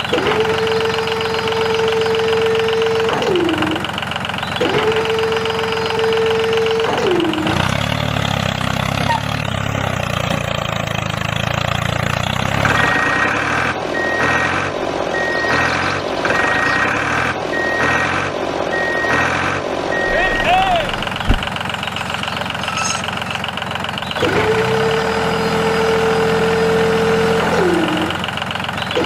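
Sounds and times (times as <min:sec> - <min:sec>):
tractor engine running: 0:00.0 - 0:29.0
reversing alarm beeping: 0:12.7 - 0:22.0
whine dropping in pitch: 0:20.0 - 0:21.6.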